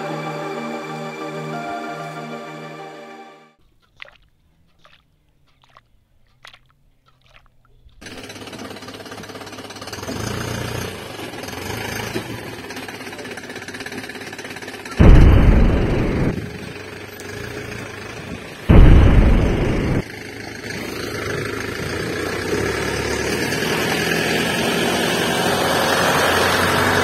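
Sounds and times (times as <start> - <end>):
water dripping: 3.8 - 8.0.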